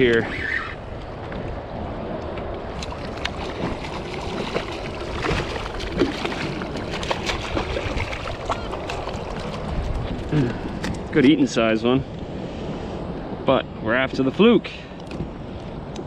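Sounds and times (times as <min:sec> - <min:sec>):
wind: 0:00.0 - 0:16.0
fish splashing at surface: 0:02.8 - 0:09.7
lapping water: 0:02.8 - 0:10.8.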